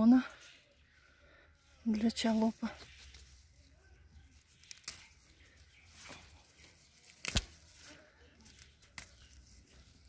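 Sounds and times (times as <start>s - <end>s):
leaves rustling: 0.0s - 10.0s
herb stems snapping: 4.2s - 10.0s.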